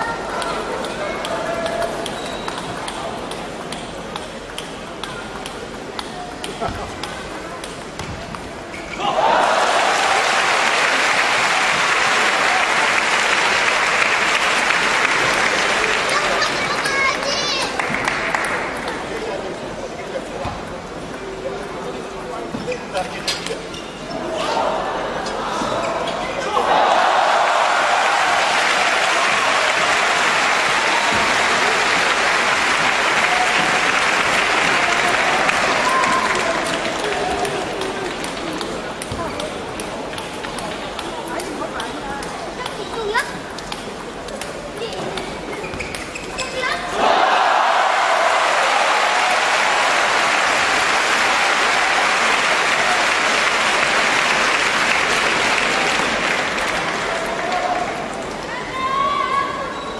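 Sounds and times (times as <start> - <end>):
crowd applauding: 9.0 - 18.8, 26.6 - 38.5, 47.0 - 58.2.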